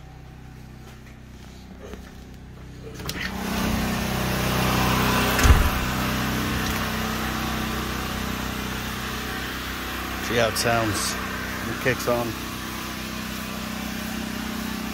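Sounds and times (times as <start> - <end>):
generator droning: 0.0 - 14.9
low thump: 5.4 - 5.9.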